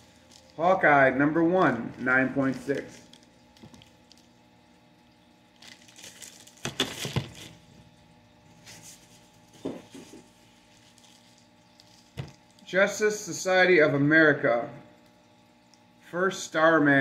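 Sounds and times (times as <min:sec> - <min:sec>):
plastic sleeves crinkling: 0:00.0 - 0:00.8, 0:01.7 - 0:04.4, 0:05.5 - 0:07.7, 0:08.5 - 0:12.7.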